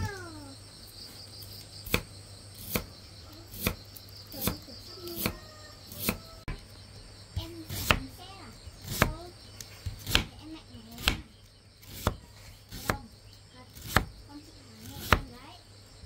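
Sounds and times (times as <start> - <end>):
knife chopping on cutting board: 4.4 - 5.4, 6.0 - 6.2, 7.7 - 8.1, 9.8 - 10.3, 11.0 - 11.2, 11.9 - 13.0, 13.8 - 14.1.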